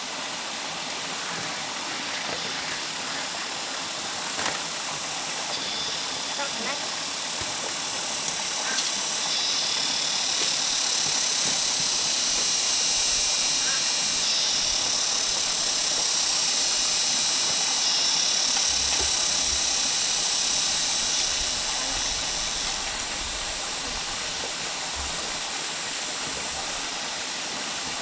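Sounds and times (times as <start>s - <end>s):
steady high hiss: 0.0s - 28.0s.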